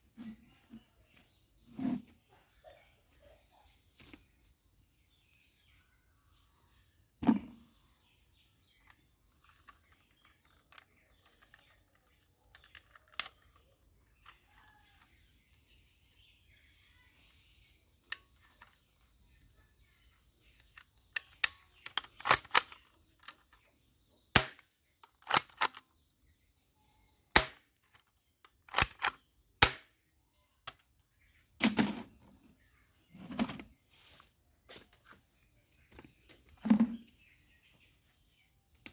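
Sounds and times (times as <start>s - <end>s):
toy gun snapping shots: 21.2s - 22.8s, 24.4s - 24.6s, 25.2s - 25.8s, 27.3s - 27.7s, 28.7s - 29.9s.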